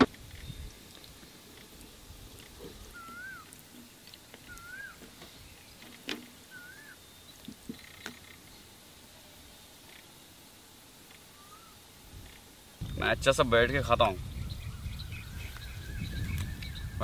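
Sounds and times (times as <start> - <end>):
bird whistling: 2.9 - 3.5, 4.4 - 5.0, 6.5 - 7.3, 11.3 - 11.8.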